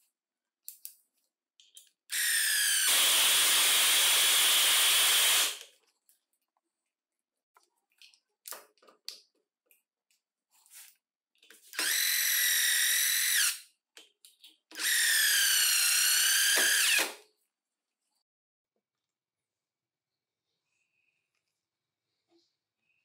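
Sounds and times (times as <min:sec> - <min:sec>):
impact driver motor whine: 0:14.8 - 0:17.2.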